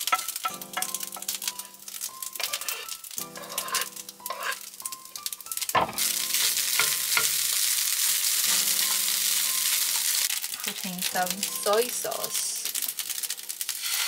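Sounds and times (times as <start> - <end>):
rice sizzling in a pan: 0.0 - 14.0
wooden spatula scraping pan: 2.4 - 4.6.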